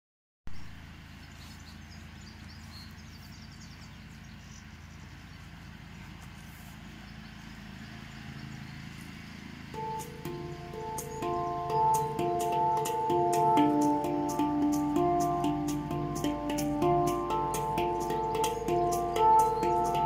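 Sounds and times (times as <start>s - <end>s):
lawnmower engine rattling: 0.8s - 20.0s
handpan ringing notes: 9.8s - 20.0s.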